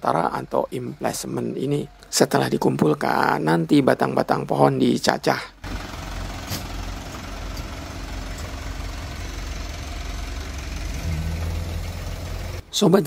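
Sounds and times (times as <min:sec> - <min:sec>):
diesel truck engine idling: 0:00.0 - 0:12.8.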